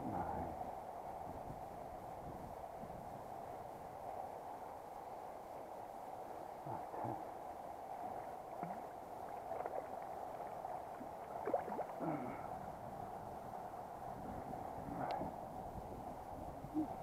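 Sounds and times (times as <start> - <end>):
river water running over stones: 8.0 - 12.4
water splashing: 8.5 - 12.4.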